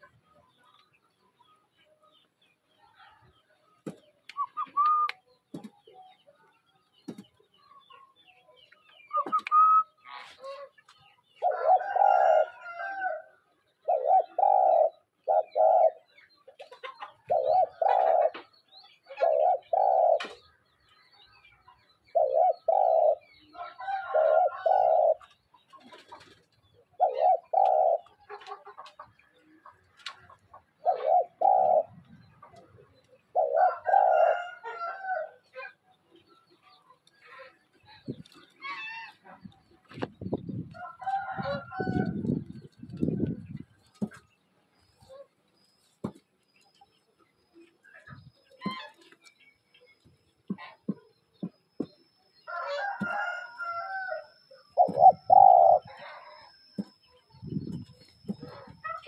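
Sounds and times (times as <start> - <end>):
dove cooing: 11.4 - 13.0, 13.8 - 16.2, 17.1 - 20.4, 22.1 - 25.3, 26.9 - 28.4, 30.6 - 35.8, 54.6 - 59.0.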